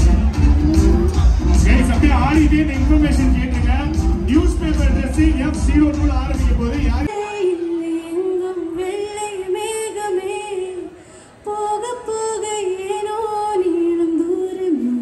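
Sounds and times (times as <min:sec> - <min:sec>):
woman singing into a microphone: 0:07.1 - 0:15.0.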